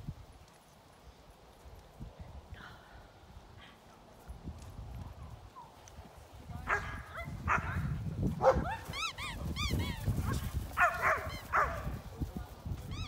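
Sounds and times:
dogs barking sharply: 8.4s - 10.0s, 10.7s - 11.9s.

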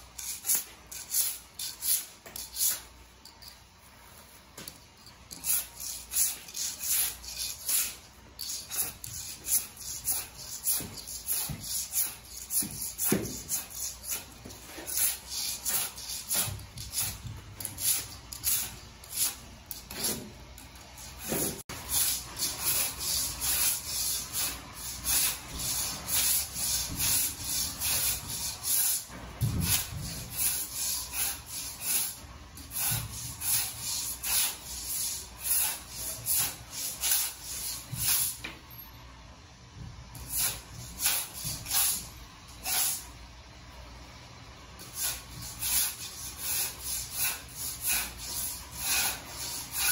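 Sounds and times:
floor scraper scraping concrete: 8.6s - 20.4s, 45.0s - 49.9s.

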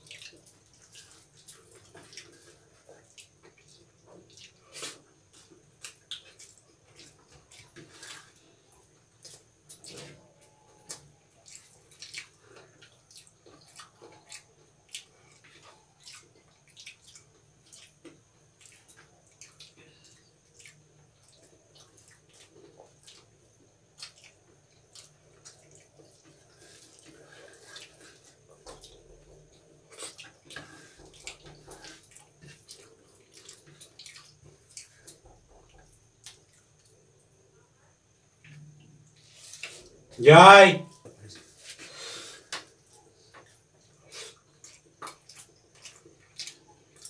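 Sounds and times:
chewing and lip-smacking: 0.0s - 8.4s, 10.8s - 37.0s, 42.6s - 47.0s.

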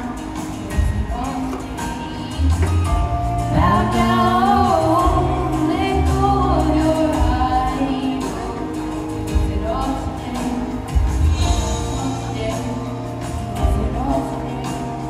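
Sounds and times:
backing track with bass line: 0.0s - 15.0s
girl singing into a microphone: 3.5s - 15.0s.

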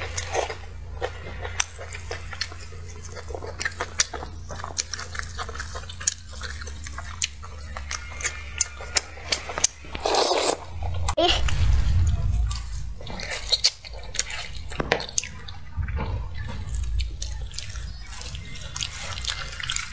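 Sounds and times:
wet chewing and mouth smacks: 0.0s - 10.9s, 12.5s - 19.9s
low hum: 10.6s - 19.9s.

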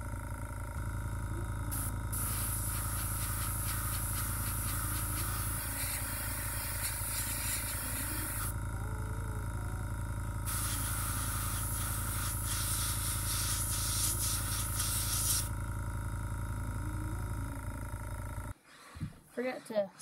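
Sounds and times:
air compressor pulsing hum: 0.0s - 20.0s
airbrush spraying hiss: 1.7s - 8.5s, 10.5s - 15.6s.

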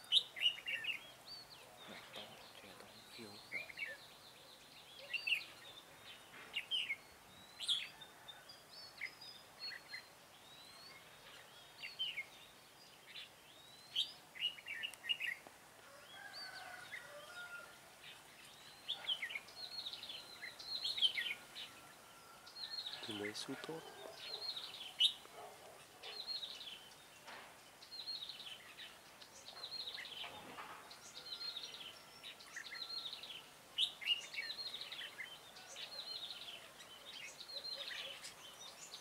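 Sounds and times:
birds chirping: 0.0s - 39.0s.

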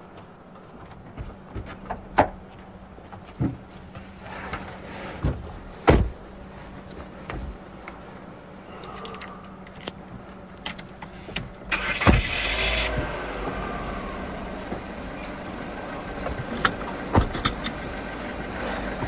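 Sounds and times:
car engine starting and idling: 8.8s - 19.0s.

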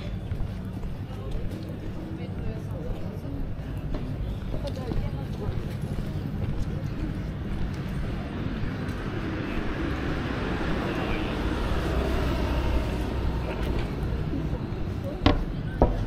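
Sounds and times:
people's voices: 0.0s - 16.0s
passing vehicle engine and tyres: 6.1s - 16.0s.

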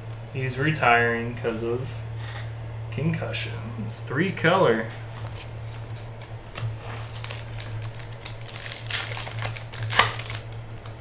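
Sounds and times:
scissors snipping foil pack: 6.2s - 11.0s
wrapper clicks and crinkles: 6.6s - 11.0s.

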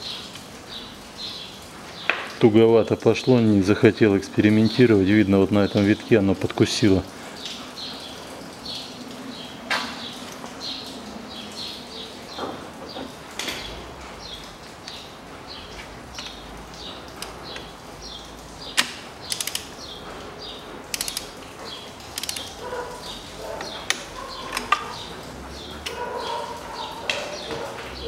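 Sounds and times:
small birds chirping: 0.0s - 28.0s
ratchet wrench clicking: 19.3s - 19.7s, 20.9s - 21.3s, 22.2s - 22.5s.

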